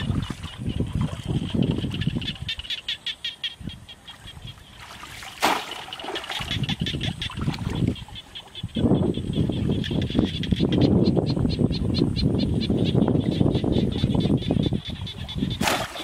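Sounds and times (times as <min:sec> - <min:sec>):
muddy water sloshing and splashing: 0:00.0 - 0:02.8, 0:03.9 - 0:10.4, 0:13.8 - 0:16.0.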